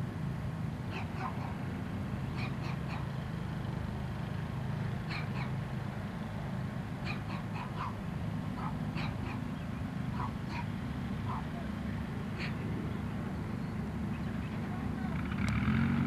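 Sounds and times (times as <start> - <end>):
aircraft engine droning: 0.0 - 16.0.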